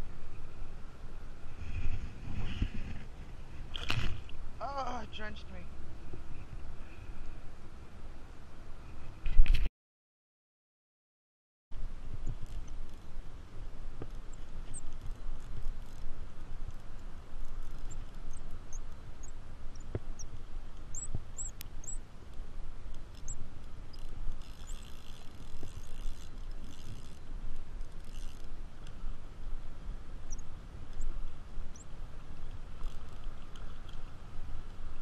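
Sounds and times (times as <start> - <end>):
wind buffeting microphone: 1.3 - 4.6.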